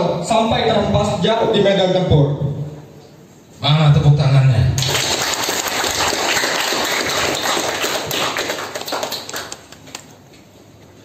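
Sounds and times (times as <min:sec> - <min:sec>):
small group applauding: 0:04.8 - 0:10.2.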